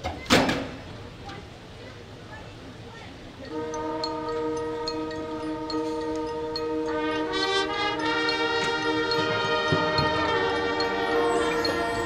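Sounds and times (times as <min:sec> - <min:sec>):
marching band brass chords: 0:03.5 - 0:12.0.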